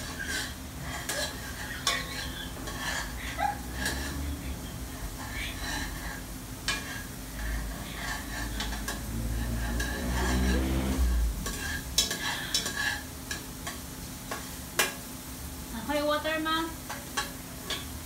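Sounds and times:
metal spoon scraping a pot: 0.0s - 14.9s
garlic and onion sizzling in oil: 0.0s - 18.0s.

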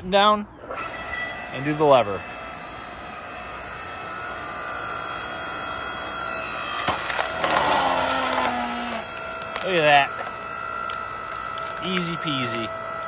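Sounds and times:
log splitter motor humming: 0.5s - 13.0s
log cracking and splintering: 6.4s - 13.0s.

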